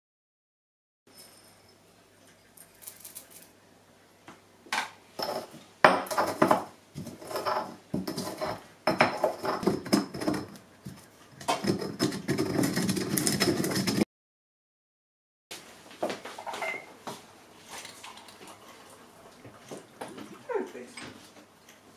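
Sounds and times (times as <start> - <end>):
pestle grinding in stone mortar: 5.2 - 14.0.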